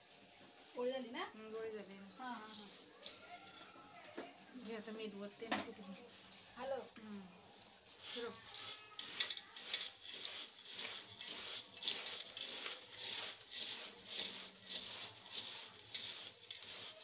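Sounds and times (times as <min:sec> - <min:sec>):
puffed rice stirred in steel bowl: 0:07.6 - 0:17.0.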